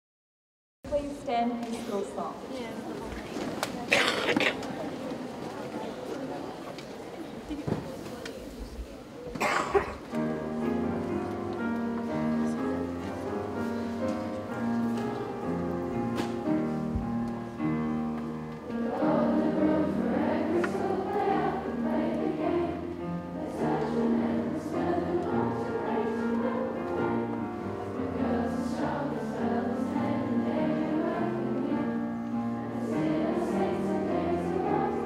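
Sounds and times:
people shuffling to their feet: 0.9 - 19.4
girls choir singing: 18.6 - 35.0.

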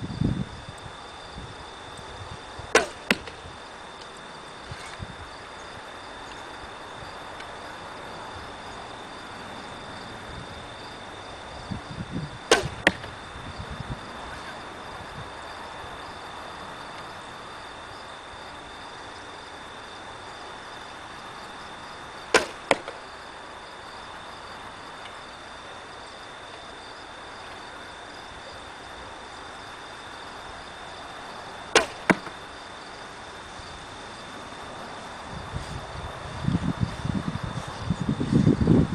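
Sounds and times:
arrow striking target: 2.7 - 3.4, 12.5 - 13.2, 22.3 - 23.0, 31.7 - 32.4
bow string snapping: 2.8 - 3.4, 12.5 - 13.1, 31.8 - 32.3.

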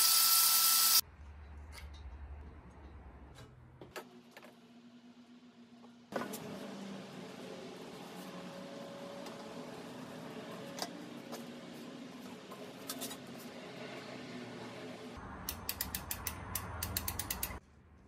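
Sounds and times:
rapid ratchet clicks: 15.5 - 17.6.

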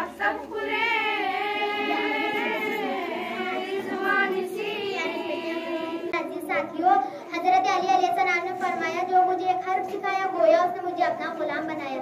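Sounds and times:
girls singing a devotional hymn: 0.0 - 9.4.

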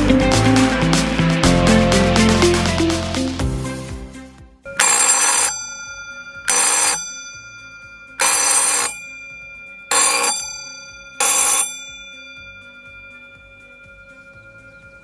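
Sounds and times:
electric alarm gong ringing: 4.7 - 15.0.

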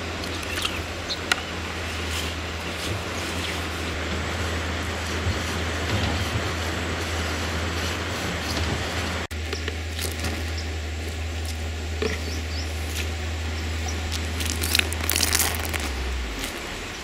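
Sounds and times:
steady low hum: 0.0 - 17.0
sharp crackles: 12.7 - 17.0
canvas sheet crinkling: 14.1 - 16.8.

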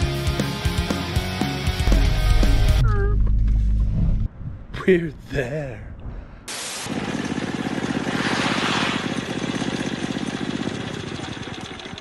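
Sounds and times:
small motorbike engine buzzing: 6.9 - 12.0.

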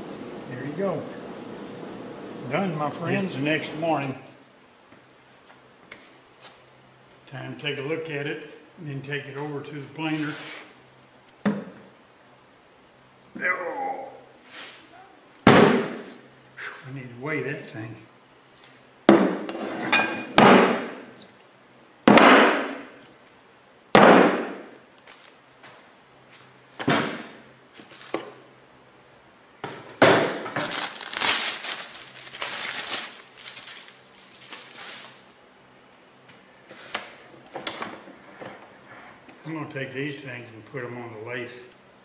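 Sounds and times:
plastic sheeting crinkling: 25.0 - 25.4, 27.8 - 28.2, 30.6 - 35.3.

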